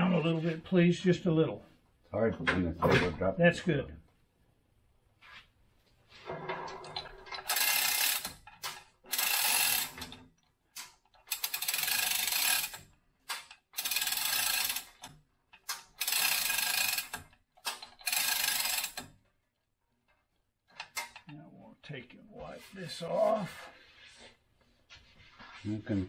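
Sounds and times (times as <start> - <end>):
chain hoist running: 6.9 - 8.4, 9.0 - 10.2, 11.2 - 12.9, 13.7 - 15.2, 15.8 - 19.1.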